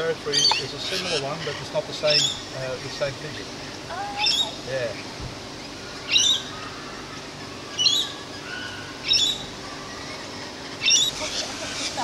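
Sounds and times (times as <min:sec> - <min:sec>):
parrot screeching: 0:07.7 - 0:10.2, 0:10.8 - 0:12.0.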